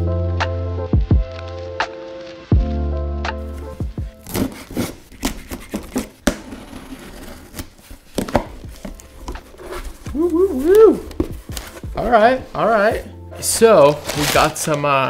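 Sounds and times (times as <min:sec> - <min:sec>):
background music: 0:00.0 - 0:15.0
cardboard flaps pulled open: 0:03.5 - 0:11.8
packing tape ripping: 0:03.5 - 0:11.9, 0:13.8 - 0:15.0.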